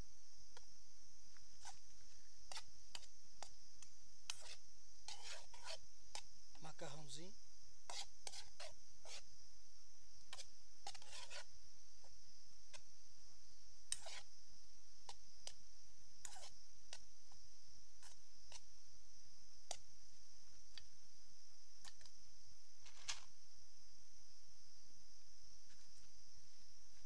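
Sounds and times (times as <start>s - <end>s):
steady high-pitched hiss: 0.0s - 27.0s
fork scraping a cooking pot: 1.6s - 1.8s, 4.3s - 6.2s, 7.9s - 9.2s, 10.3s - 11.5s, 13.9s - 14.3s, 16.2s - 16.5s, 18.0s - 18.6s.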